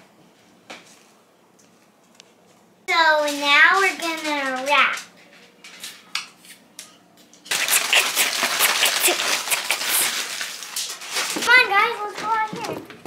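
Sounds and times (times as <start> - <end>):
aluminium foil crinkling: 3.2 - 6.1, 7.5 - 12.7.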